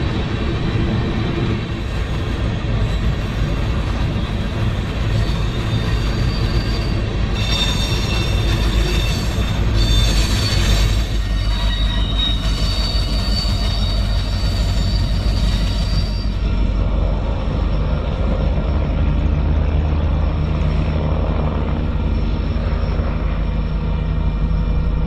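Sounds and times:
locomotive engines rumbling: 0:00.0 - 0:25.0
train cars rolling: 0:00.0 - 0:25.0
thin high squeal: 0:05.2 - 0:16.4.

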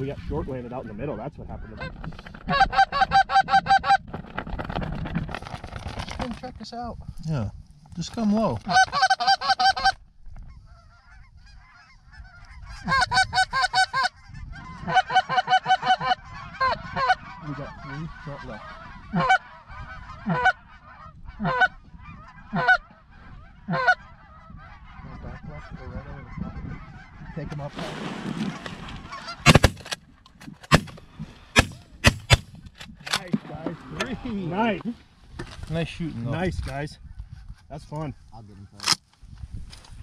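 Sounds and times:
goose clucking and honking: 0:01.6 - 0:04.0, 0:08.6 - 0:27.7, 0:29.1 - 0:29.8
shotgun blasts: 0:29.4 - 0:30.0, 0:30.6 - 0:31.0, 0:31.6 - 0:32.5.

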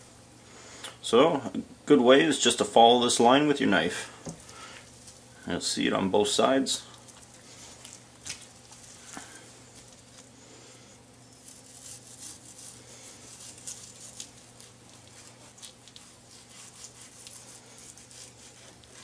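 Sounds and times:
low steady hum: 0:00.0 - 0:19.0
knife slicing meat: 0:11.4 - 0:19.0.

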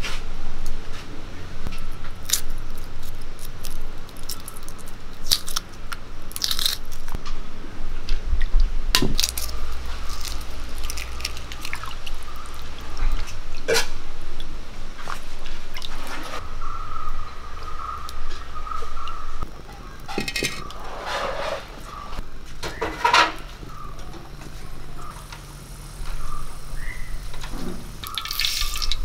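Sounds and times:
low steady rumble: 0:00.0 - 0:22.6, 0:23.4 - 0:29.0
eggshells cracking: 0:02.2 - 0:07.2, 0:09.0 - 0:13.2, 0:28.0 - 0:29.0.

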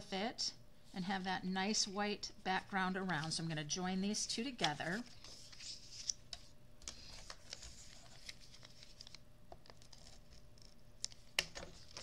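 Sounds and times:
paper rustling: 0:04.8 - 0:12.0.

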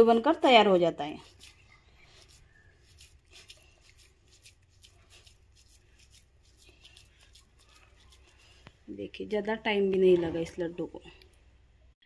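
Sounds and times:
hands pressing crumbly mixture: 0:01.1 - 0:09.7.

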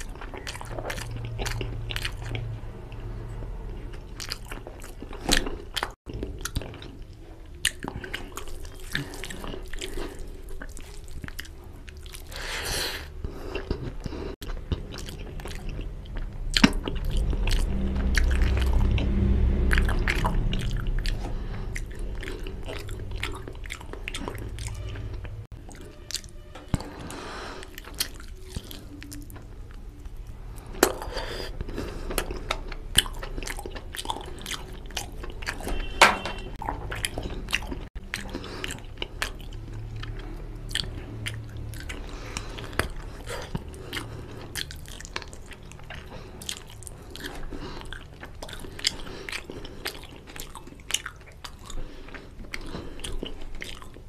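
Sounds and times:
wet chewing and lip-smacking: 0:00.0 - 0:03.1, 0:03.7 - 0:54.0.

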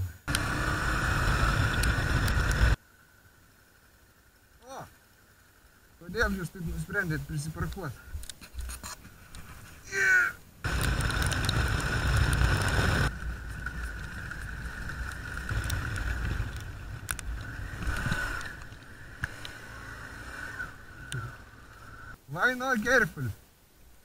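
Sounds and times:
motorcycle engine droning: 0:00.0 - 0:07.0, 0:10.6 - 0:22.2
wind rush on microphone: 0:10.6 - 0:19.3.

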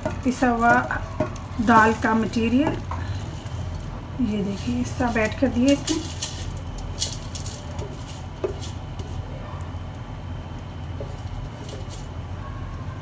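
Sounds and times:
spatula scraping a bowl: 0:00.0 - 0:03.8, 0:04.4 - 0:09.2
steady low hum: 0:00.0 - 0:13.0.

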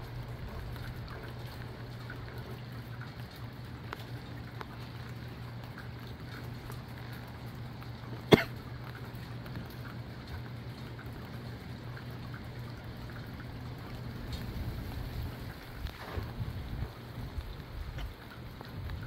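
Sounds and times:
small drips: 0:00.0 - 0:19.0
steady rain: 0:00.0 - 0:19.0
gusty wind: 0:14.2 - 0:19.0.

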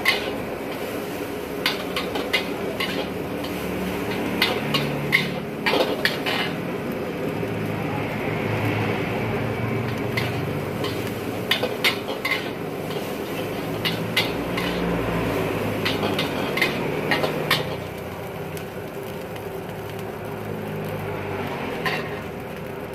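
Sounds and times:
metal ladle clanking on wok: 0:01.6 - 0:06.6, 0:09.9 - 0:14.9, 0:15.8 - 0:17.8.

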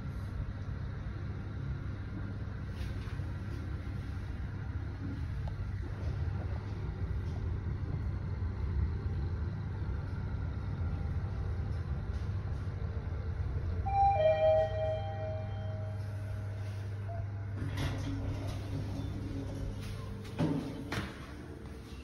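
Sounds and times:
elevator low rumble: 0:00.0 - 0:22.0
two-note falling chime: 0:13.9 - 0:16.1.

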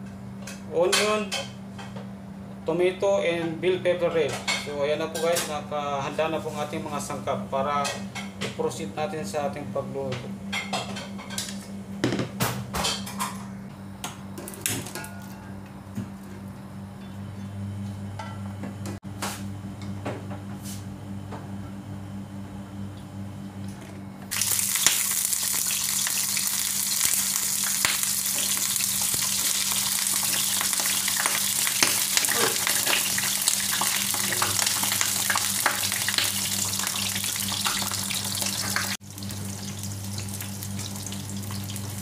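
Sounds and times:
eggplant sizzling in hot oil: 0:24.3 - 0:42.0.

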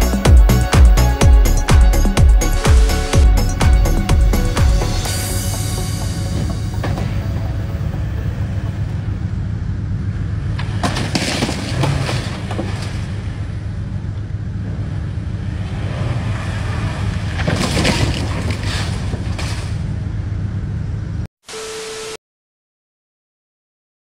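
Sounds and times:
low engine rumble: 0:00.0 - 0:21.3
metal crashing and scraping: 0:10.6 - 0:13.1, 0:17.2 - 0:19.8.

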